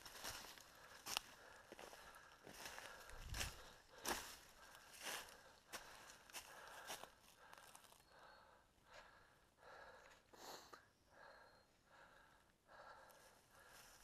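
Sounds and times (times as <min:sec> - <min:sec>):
footstep rustling dry leaves: 0:00.0 - 0:08.0.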